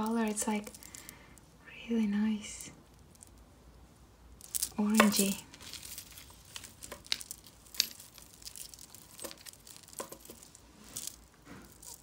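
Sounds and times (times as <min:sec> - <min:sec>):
jewelry chains clicking and rustling: 0:00.0 - 0:01.4, 0:02.9 - 0:03.4, 0:04.3 - 0:12.0.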